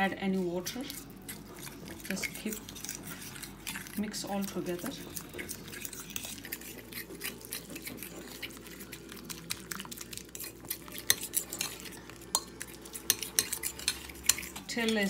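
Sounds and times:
spoon scraping a bowl: 0:00.0 - 0:15.0.

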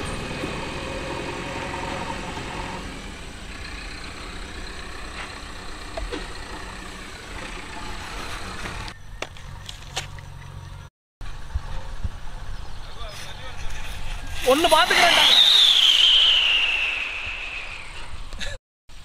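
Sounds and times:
engine idling: 0:00.0 - 0:10.9.

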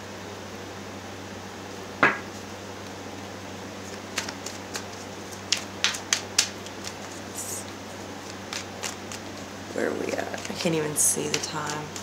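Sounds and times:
steady low hum: 0:00.0 - 0:12.0
cards being shuffled: 0:03.8 - 0:12.0.

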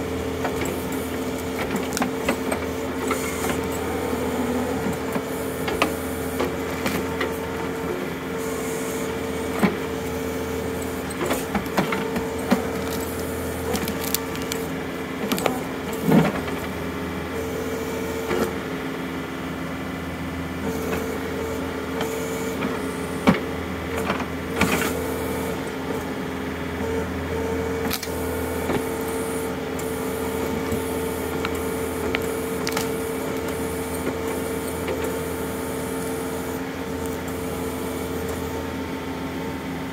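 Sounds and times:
hydraulics whining: 0:00.0 - 0:16.4, 0:27.8 - 0:39.6
diesel tractor engine running: 0:00.0 - 0:39.9
roots and wood cracking: 0:12.6 - 0:14.7.

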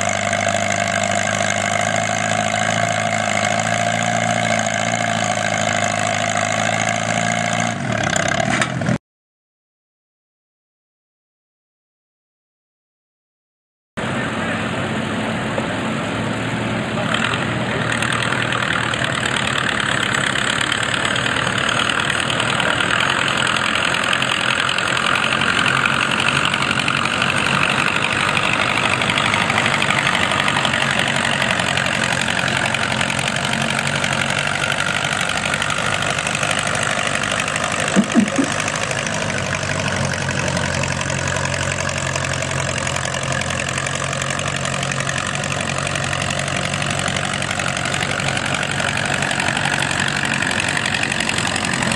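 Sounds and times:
tractor engine running under load: 0:00.0 - 0:09.0, 0:14.0 - 0:51.9
sled dragging through dirt: 0:18.2 - 0:51.9.

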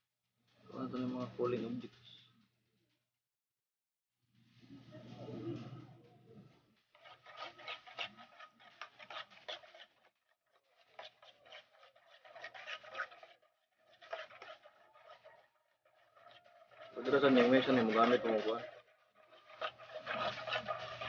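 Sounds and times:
utensil beating batter in pot: 0:06.3 - 0:21.0.

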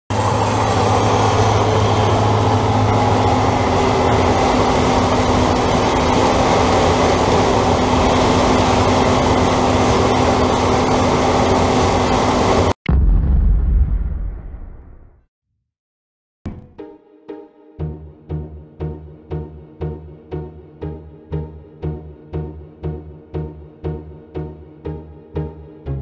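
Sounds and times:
tractor running: 0:00.1 - 0:12.8.

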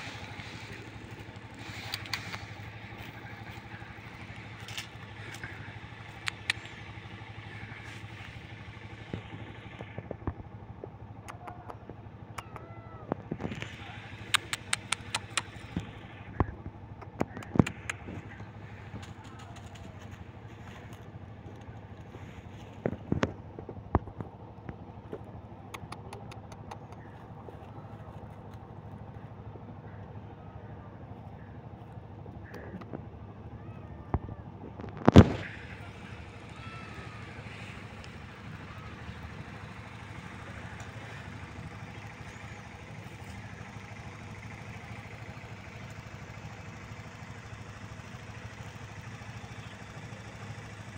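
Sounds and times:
paws rustling through dry leaves: 0:00.0 - 0:09.2, 0:18.2 - 0:23.1, 0:27.0 - 0:29.4
engine idling: 0:00.0 - 0:50.9
steady low hum: 0:00.0 - 0:50.9.

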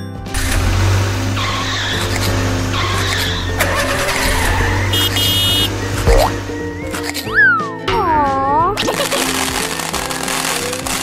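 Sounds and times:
children's background music: 0:00.0 - 0:11.0
cartoon engine running: 0:00.3 - 0:07.0, 0:08.8 - 0:11.0
tyre skid squeals: 0:01.2 - 0:07.2.

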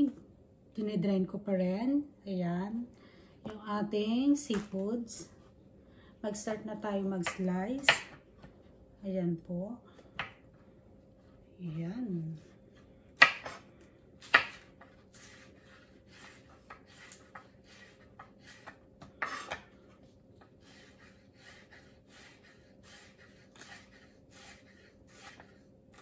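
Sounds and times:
knife chopping on wooden board: 0:07.2 - 0:08.2, 0:13.2 - 0:13.6, 0:14.2 - 0:19.8.

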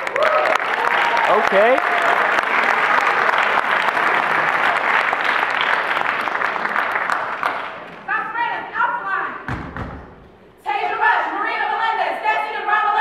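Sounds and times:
audience clapping: 0:00.0 - 0:08.1.

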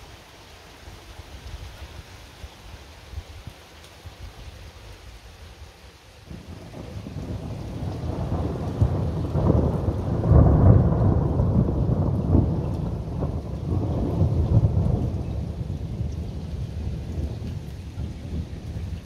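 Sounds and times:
rain falling: 0:00.0 - 0:19.0
rolling thunder: 0:06.3 - 0:19.0.

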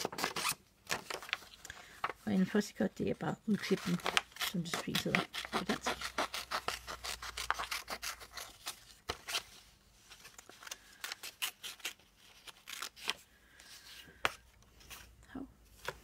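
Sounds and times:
scissors snipping paper: 0:03.5 - 0:09.4.

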